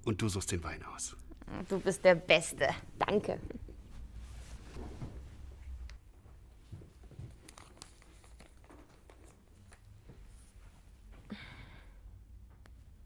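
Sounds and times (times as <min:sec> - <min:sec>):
paper rustling: 0:07.0 - 0:09.9.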